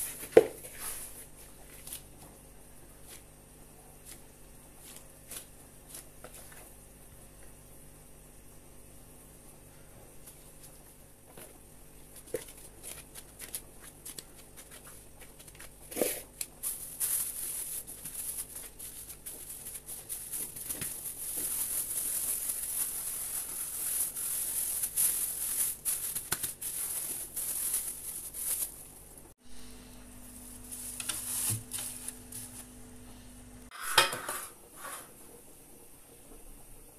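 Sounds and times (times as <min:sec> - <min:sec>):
freezer humming: 0:00.0 - 0:33.7
plastic bag crinkling: 0:12.1 - 0:29.1.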